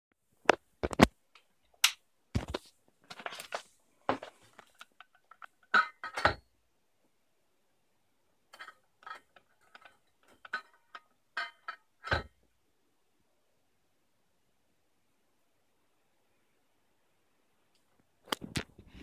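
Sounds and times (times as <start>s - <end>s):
metal tools clinking and knocking: 4.6s - 6.4s, 8.5s - 12.4s.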